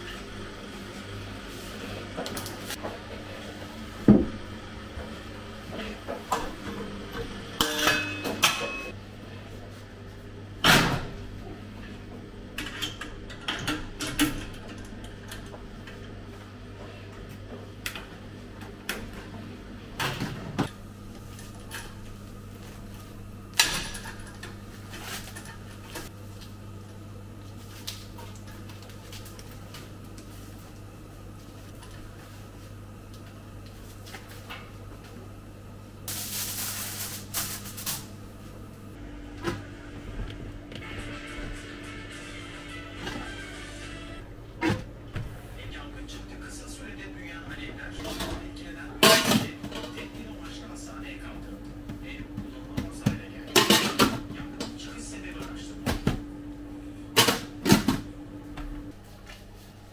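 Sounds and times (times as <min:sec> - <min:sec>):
steady low hum: 0:00.0 - 0:59.9
dishes and utensils clattering: 0:07.6 - 0:08.9.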